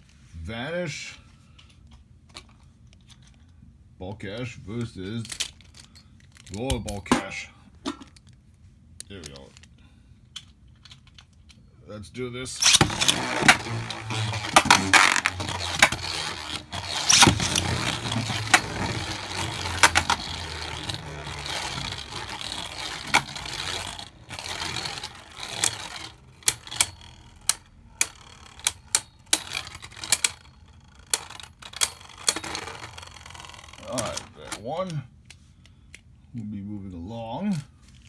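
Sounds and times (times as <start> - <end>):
spinning tops clacking: 12.6 - 34.4
spinning tops scraping whir: 12.6 - 34.6.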